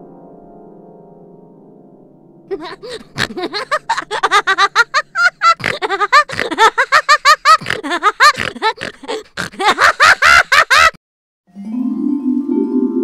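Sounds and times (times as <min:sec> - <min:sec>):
music: 0:00.0 - 0:03.2, 0:11.5 - 0:13.0
cartoon voice laughing: 0:02.5 - 0:11.0.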